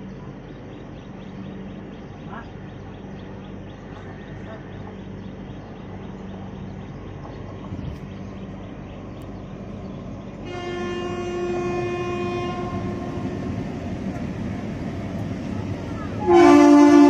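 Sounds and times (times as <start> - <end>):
train running noise: 0.0 - 17.0
train horn long blast: 10.4 - 13.8, 16.1 - 17.0.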